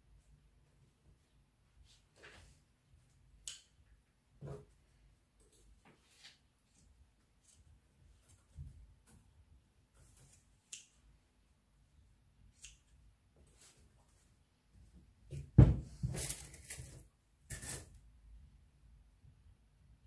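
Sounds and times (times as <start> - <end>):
thump on table: 15.3 - 16.2.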